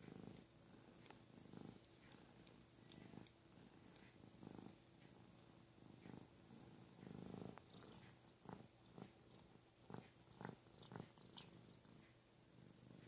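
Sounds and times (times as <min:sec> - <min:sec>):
cats purring: 0:00.0 - 0:13.0
cat licking strokes: 0:00.2 - 0:12.1.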